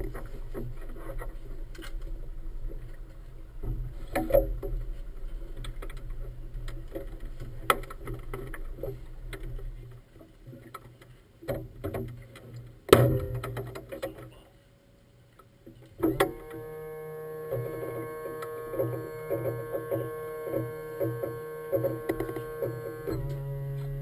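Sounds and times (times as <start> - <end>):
knocks and clicks of lines: 10.5 - 14.4, 15.7 - 16.7, 17.5 - 24.0.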